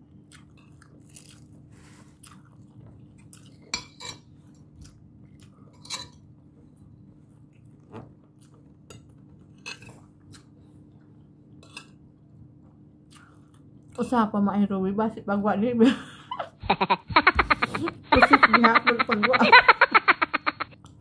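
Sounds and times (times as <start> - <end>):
steady low hum: 0.0 - 21.0
chewing: 0.2 - 3.7, 7.5 - 11.2
cutlery clinking on a plate: 3.7 - 4.3.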